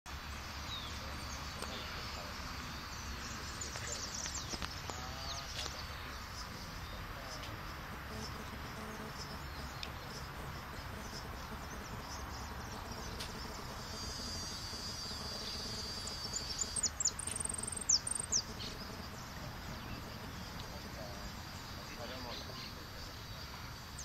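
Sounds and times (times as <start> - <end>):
outdoor background noise: 0.1 - 24.0
finch singing: 9.1 - 21.3.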